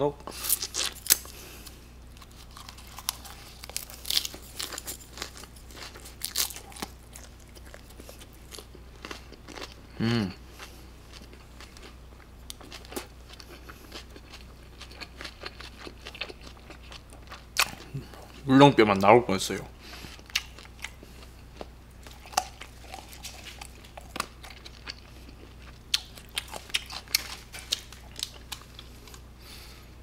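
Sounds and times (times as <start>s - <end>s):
crisp chewing crunches: 0.3s - 10.0s, 10.6s - 18.5s, 19.9s - 29.3s
person humming: 9.9s - 10.4s.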